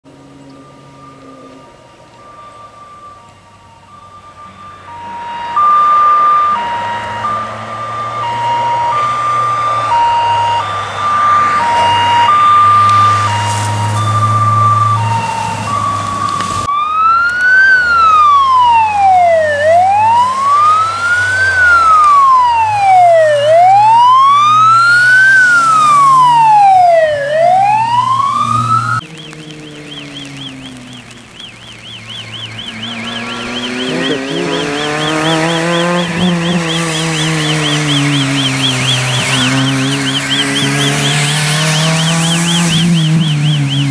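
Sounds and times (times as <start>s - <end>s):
faint fast siren warble: 0.1s - 30.7s, 31.6s - 43.9s
electronic siren: 0.1s - 43.9s
car engine running: 27.3s - 43.9s.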